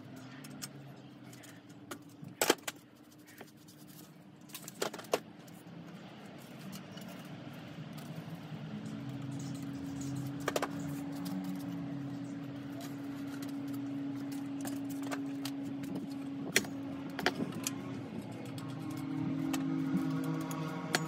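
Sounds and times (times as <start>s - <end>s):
steady low hum: 0.0s - 21.0s
bicycle parts clicking: 12.6s - 21.0s.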